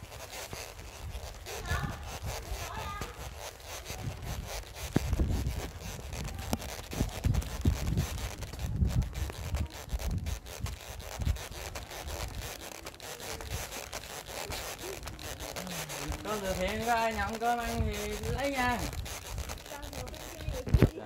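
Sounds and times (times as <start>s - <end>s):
rubbing and scraping on microphone: 0.0s - 21.0s.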